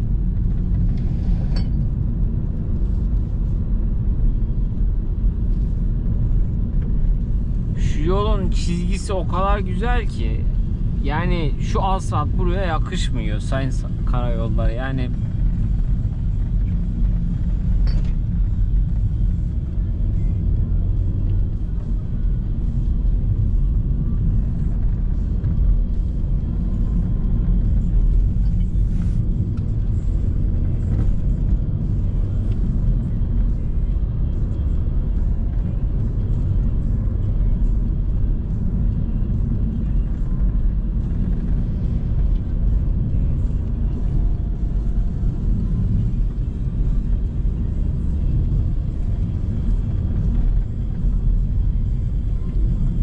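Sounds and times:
car cabin road and engine noise: 0.0 - 53.0.

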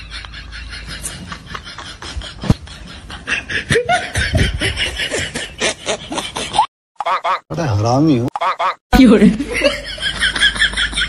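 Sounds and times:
people laughing: 0.0 - 6.7, 9.3 - 11.0.

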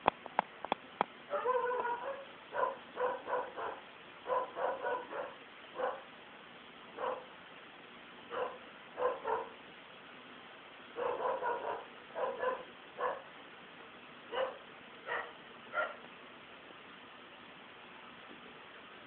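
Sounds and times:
dog barking: 1.3 - 6.1, 7.0 - 7.3, 8.3 - 9.6, 11.0 - 13.3, 14.3 - 16.0.

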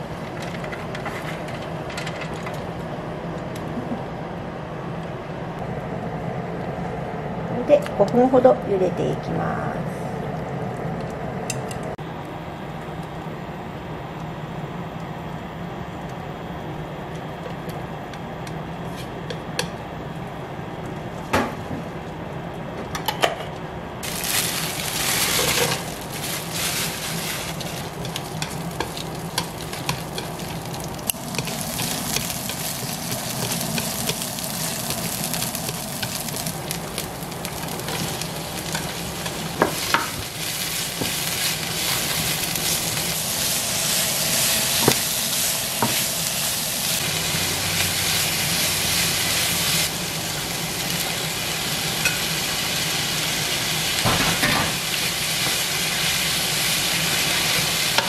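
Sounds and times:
garlic sizzling in hot oil: 24.0 - 58.0.

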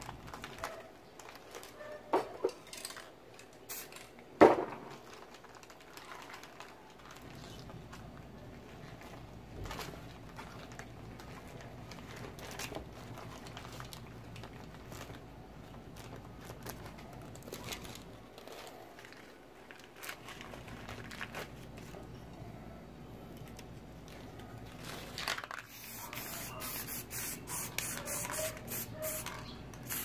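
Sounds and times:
paper crinkling: 0.0 - 2.0, 4.9 - 22.2, 23.3 - 27.0.

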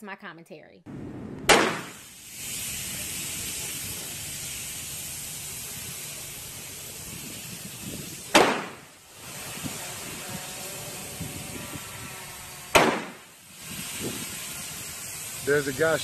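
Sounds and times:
revolver shots: 1.5 - 2.0, 8.3 - 8.8, 12.7 - 13.2
air hissing from tire: 1.7 - 16.0.

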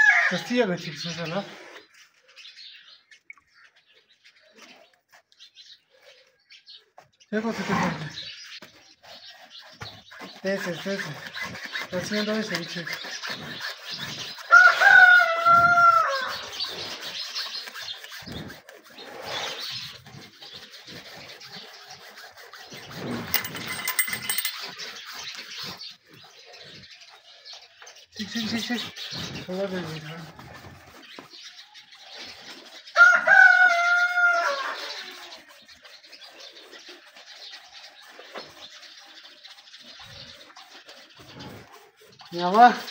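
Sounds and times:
rooster crowing: 0.0 - 0.4, 14.5 - 16.3, 33.0 - 34.9
wire saw rasping on horn: 9.0 - 15.0, 20.6 - 24.8.

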